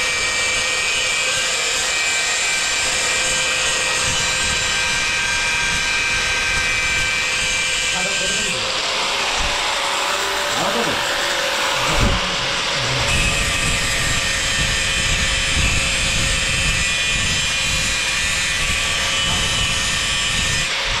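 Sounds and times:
angle grinder cutting steel: 0:00.0 - 0:21.0.

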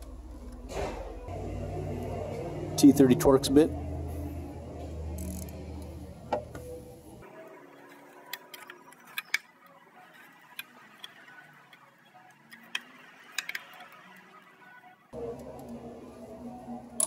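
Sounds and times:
ratchet clicking: 0:05.1 - 0:05.9.

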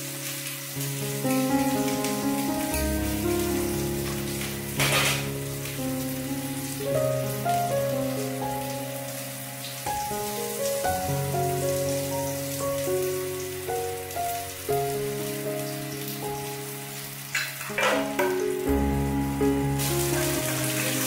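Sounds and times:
food frying in oil: 0:00.0 - 0:21.0
melody over bass notes: 0:01.4 - 0:07.4, 0:18.4 - 0:20.9.

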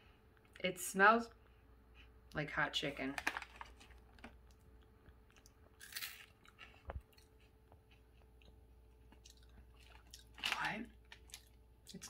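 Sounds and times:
crunchy snack chewing: 0:04.4 - 0:12.0.

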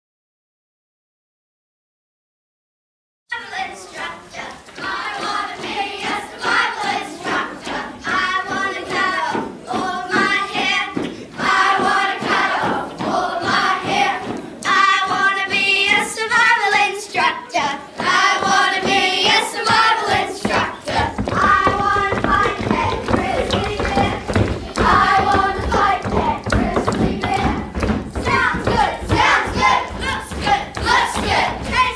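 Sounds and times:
children singing together: 0:03.3 - 0:31.9
thuds: 0:06.8 - 0:16.1, 0:17.6 - 0:31.9.

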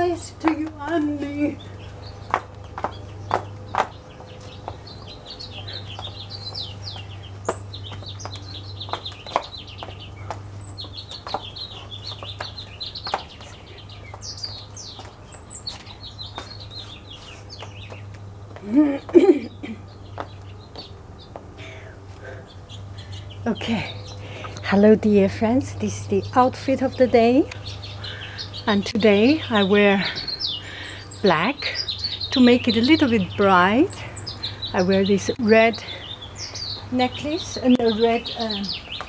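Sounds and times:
small birds chirping: 0:00.0 - 0:39.0
steady low hum: 0:00.0 - 0:39.0
high heels tapping on stone: 0:00.4 - 0:01.4, 0:02.2 - 0:05.2, 0:05.9 - 0:16.9, 0:17.6 - 0:19.4, 0:20.1 - 0:21.5.

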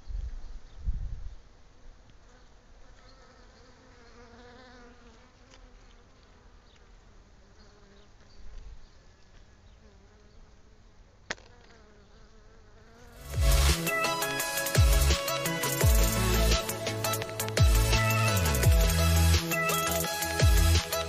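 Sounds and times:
bees buzzing: 0:11.4 - 0:21.0
sharp click: 0:17.0 - 0:17.6.

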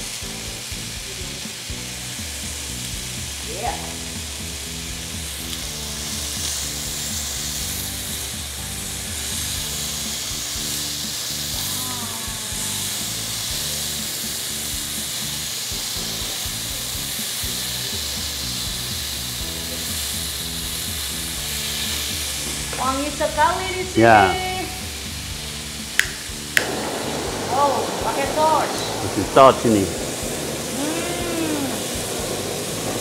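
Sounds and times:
background music: 0:00.0 - 0:33.0
meat sizzling on grill pan: 0:00.0 - 0:33.0.

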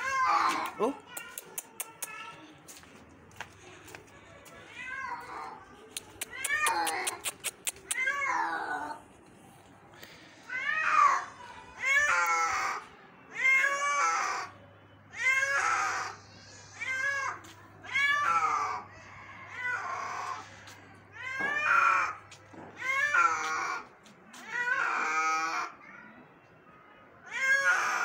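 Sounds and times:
cat meowing loudly: 0:00.0 - 0:01.0, 0:06.2 - 0:09.0, 0:10.5 - 0:14.5, 0:15.1 - 0:18.9, 0:19.5 - 0:25.8, 0:27.2 - 0:28.0.

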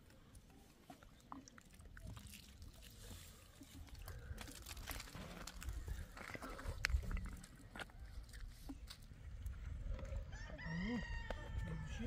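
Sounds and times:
water pouring from jug: 0:01.1 - 0:05.6.

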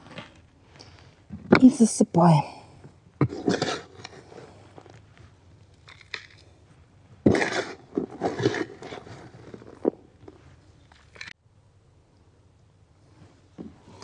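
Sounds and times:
scoop digging potting mix: 0:07.2 - 0:11.2.

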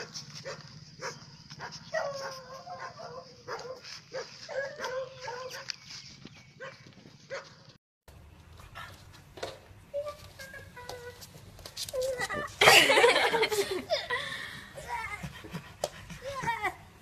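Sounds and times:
puppy whining barks: 0:00.0 - 0:05.8.

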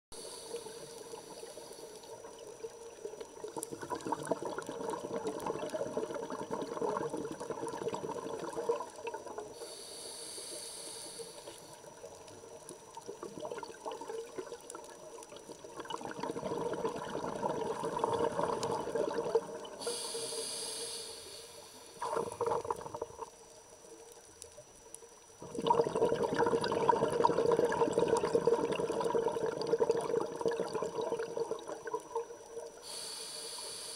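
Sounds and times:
regulator inhale hiss: 0:00.1 - 0:02.3, 0:09.0 - 0:11.9, 0:19.7 - 0:22.6, 0:32.8 - 0:33.9
exhaled bubbles underwater: 0:00.2 - 0:09.7, 0:11.7 - 0:20.1, 0:22.0 - 0:23.5, 0:25.3 - 0:33.0.

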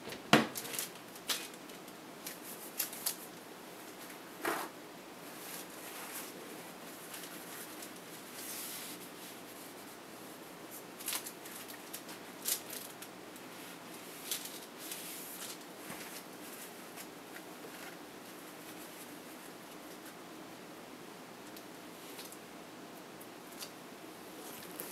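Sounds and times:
steady low hiss: 0:00.0 - 0:24.9
parchment paper rustling: 0:00.5 - 0:20.2.

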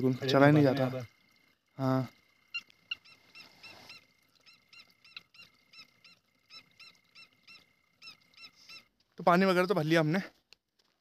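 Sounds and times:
high insect drone: 0:00.0 - 0:10.1
faint animal calls: 0:01.0 - 0:09.0.

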